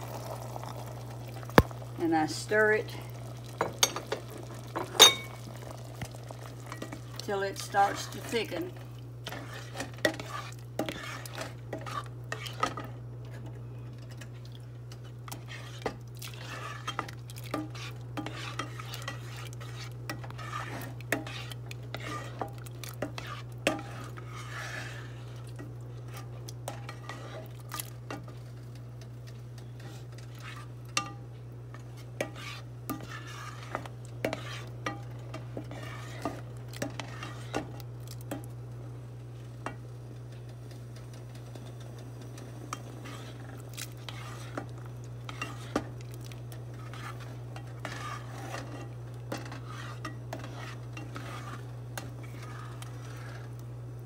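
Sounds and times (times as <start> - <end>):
steady low hum: 0.0 - 54.0
spoon scraping a metal saucepan: 4.8 - 5.5, 9.3 - 12.9, 15.3 - 25.4, 26.1 - 27.5, 29.6 - 37.7, 42.8 - 45.9, 46.7 - 53.6.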